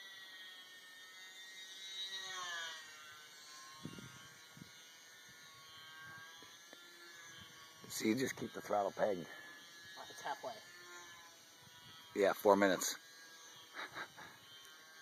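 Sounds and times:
small electric motor whine: 0.0 - 15.0.

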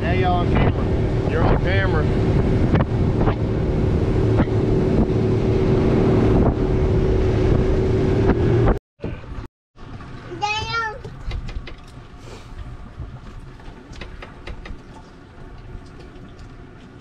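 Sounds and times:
wind on microphone: 0.0 - 9.4
boat motor running: 0.0 - 17.0.

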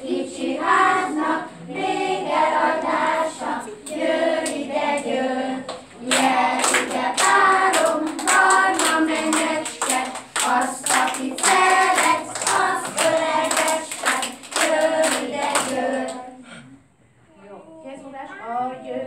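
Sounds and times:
children singing: 0.0 - 16.6
hands clapping: 5.7 - 16.2.

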